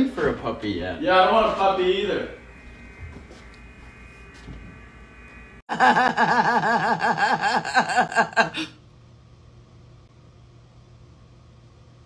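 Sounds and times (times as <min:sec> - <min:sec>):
room hum: 0:00.0 - 0:12.0
woman laughing excitedly: 0:05.7 - 0:08.8.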